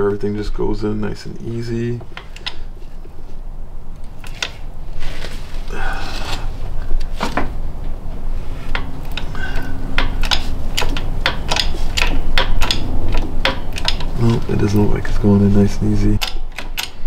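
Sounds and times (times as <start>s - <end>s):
low hum: 0.0s - 17.0s
metallic clicks and knocks of press: 2.1s - 2.6s, 8.7s - 14.9s, 16.2s - 17.0s.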